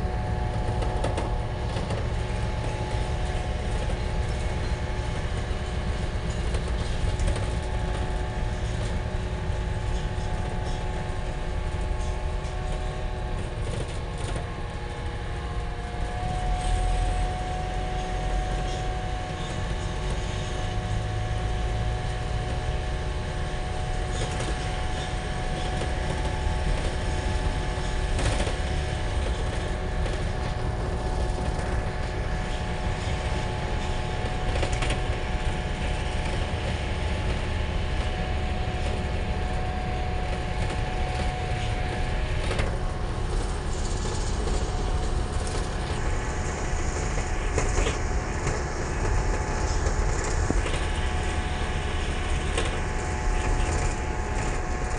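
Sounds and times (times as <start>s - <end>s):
engine and road rumble: 0.0s - 54.9s
steady whine: 0.0s - 54.9s.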